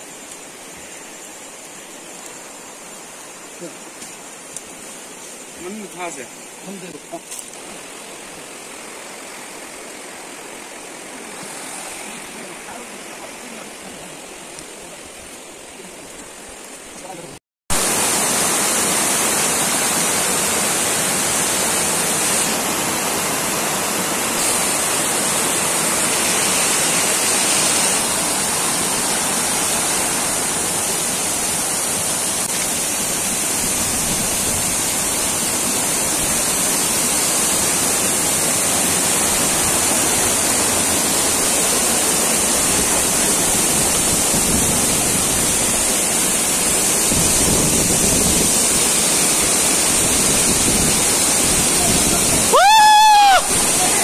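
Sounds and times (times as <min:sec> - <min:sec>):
waterfall rushing over rocks: 0:00.0 - 0:54.0.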